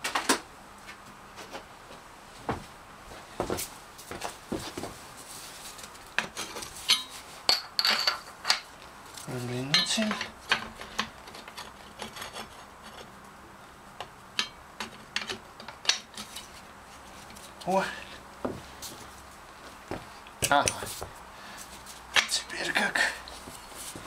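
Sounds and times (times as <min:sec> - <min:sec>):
steel bar clinking on metal: 0:06.9 - 0:08.6.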